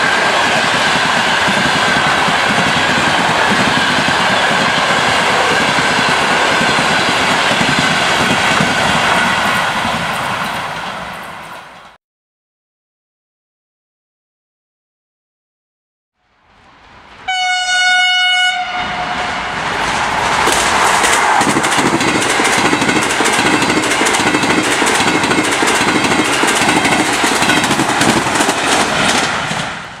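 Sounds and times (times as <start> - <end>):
train wheels clattering over rails: 0.0 - 12.0, 19.7 - 30.0
train horn: 17.2 - 19.6.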